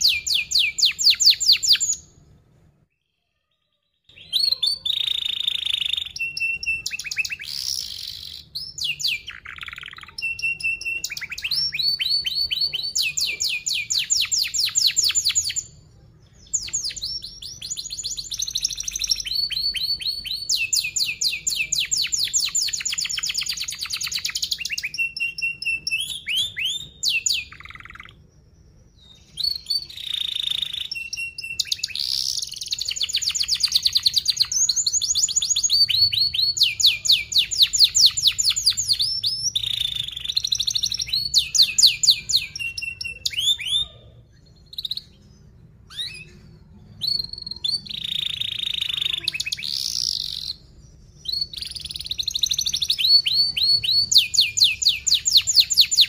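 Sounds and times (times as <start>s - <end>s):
canary singing trills: 0.0s - 2.3s, 2.9s - 56.0s.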